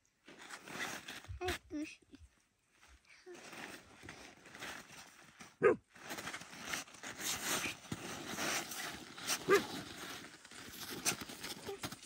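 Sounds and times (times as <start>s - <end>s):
crunching in snow: 3.3s - 12.0s
dog barking: 5.6s - 5.8s, 9.5s - 9.7s.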